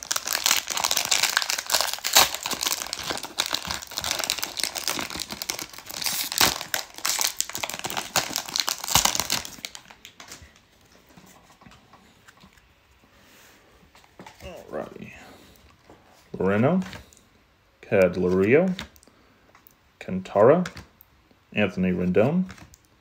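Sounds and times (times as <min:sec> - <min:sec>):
plastic wrapper crinkling and tearing: 0:00.0 - 0:10.7
faint handling of cards: 0:00.2 - 0:17.3, 0:17.9 - 0:22.9.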